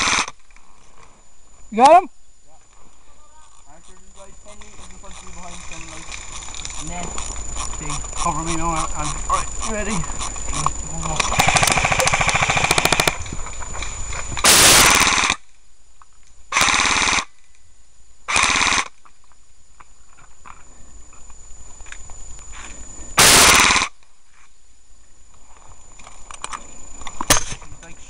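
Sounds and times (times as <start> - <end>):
airsoft gun full-auto bursts: 0.0 - 0.4, 11.3 - 13.2, 14.4 - 15.4, 16.5 - 17.3, 18.3 - 19.0, 23.2 - 24.0.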